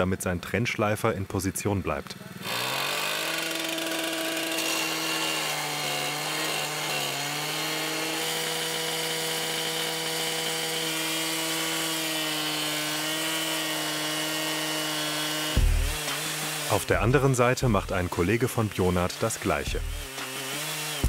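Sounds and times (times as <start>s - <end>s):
cut-off saw grinding steel: 2.3s - 21.0s.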